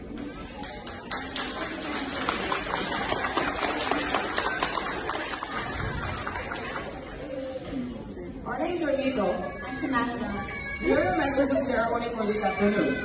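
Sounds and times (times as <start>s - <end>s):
audience applause: 0.6s - 7.3s.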